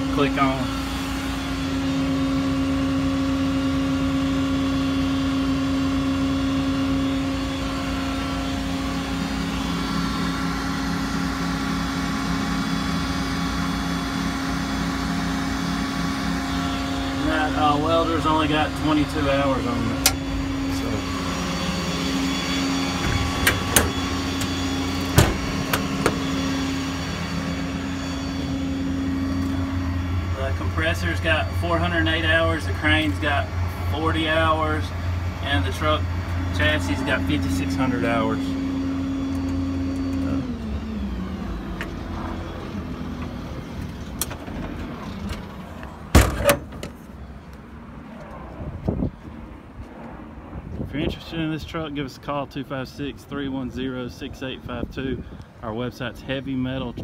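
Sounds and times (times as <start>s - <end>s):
diesel engine running: 0.0s - 57.0s
machinery drone: 0.0s - 57.0s
compartment door slamming: 23.0s - 26.2s, 46.2s - 47.0s.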